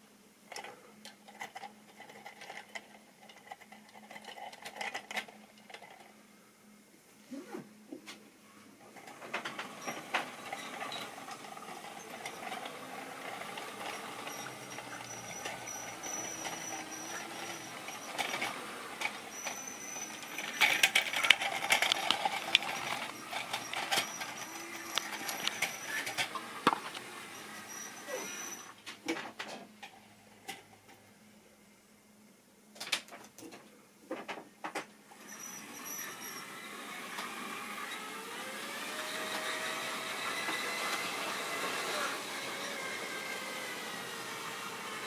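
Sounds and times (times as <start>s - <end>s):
model train rattling on track: 9.0s - 26.8s
high whine of model train: 9.0s - 28.8s, 35.1s - 45.0s.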